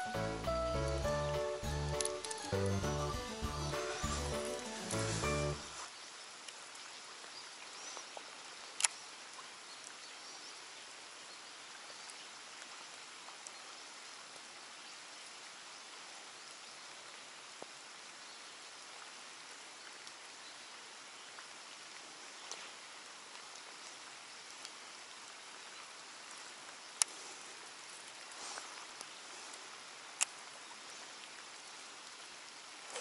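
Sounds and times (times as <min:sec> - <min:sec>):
light rain on water: 0:00.0 - 0:33.0
faint ticks: 0:27.0 - 0:27.2, 0:28.6 - 0:30.4.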